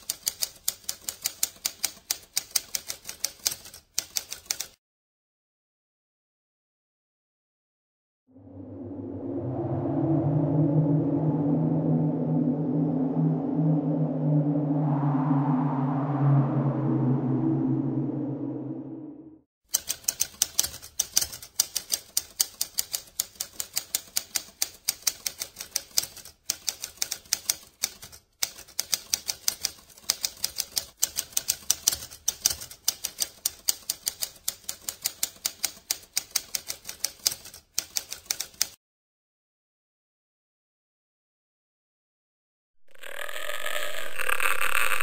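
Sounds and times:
typewriter keys striking: 0.0s - 4.8s, 19.7s - 38.8s.

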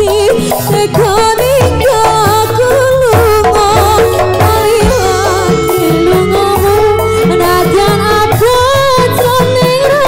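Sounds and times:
instrumental accompaniment: 0.0s - 10.0s
woman singing with vibrato: 0.0s - 10.0s
low drum strokes: 3.6s - 8.3s.

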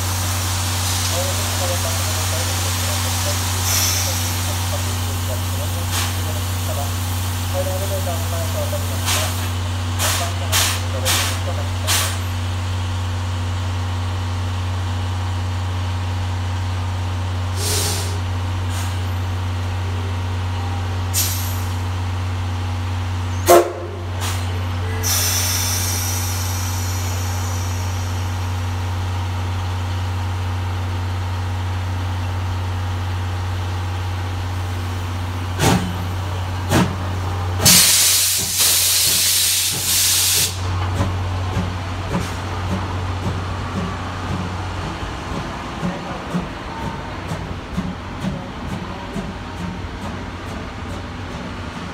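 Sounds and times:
steam hissing: 0.0s - 12.3s, 17.5s - 19.1s, 21.1s - 21.8s, 24.1s - 28.5s, 37.5s - 40.8s
steam locomotive low hum: 0.0s - 51.9s.

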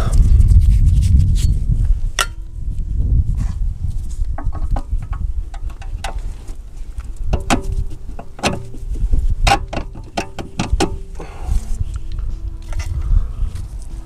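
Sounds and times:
low rumble: 0.0s - 14.0s
metallic clicks and knocks: 4.4s - 6.3s, 7.1s - 11.2s.

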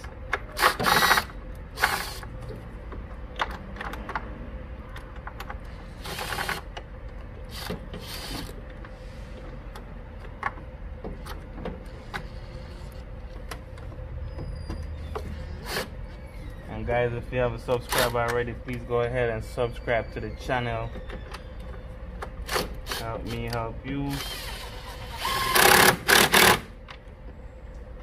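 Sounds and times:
steady low hum: 0.0s - 28.0s
ratchet clicking and scraping on metal: 5.2s - 8.8s, 22.4s - 26.7s.

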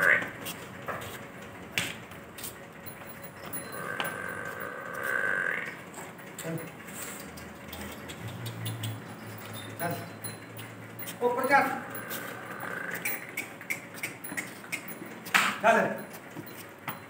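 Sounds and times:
buffalo calling: 0.0s - 0.4s, 3.4s - 5.9s, 11.2s - 15.2s.

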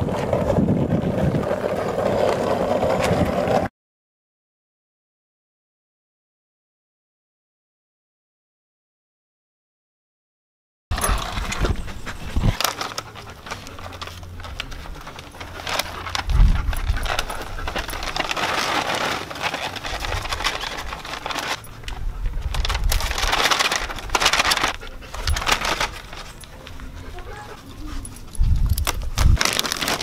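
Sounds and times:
plastic bag crinkling: 12.4s - 21.7s, 22.4s - 26.6s, 28.6s - 30.0s.

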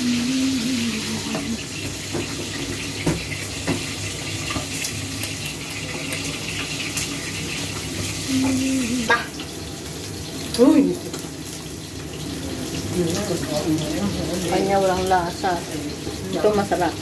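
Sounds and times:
hot oil sizzling: 0.0s - 17.0s.

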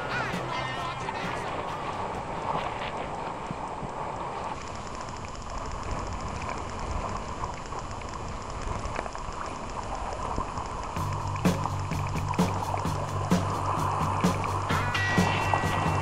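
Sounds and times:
music with steady beat: 0.0s - 1.8s, 11.0s - 16.0s
water splashing: 0.0s - 16.0s
wind rushing: 11.2s - 16.0s.

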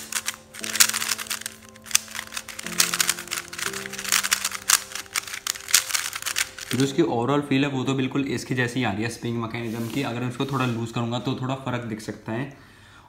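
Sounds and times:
puzzle cube clicking: 0.0s - 6.9s.

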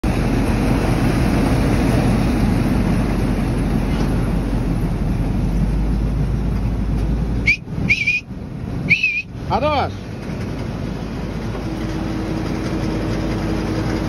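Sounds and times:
harvester and tractor running: 0.0s - 14.0s
short high whistle: 7.4s - 9.3s.

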